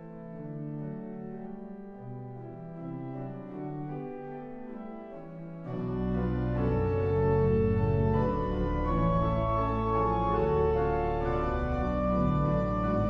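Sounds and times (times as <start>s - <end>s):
pipe organ chords: 0.2s - 13.0s
deep organ pedal bass: 5.7s - 13.0s.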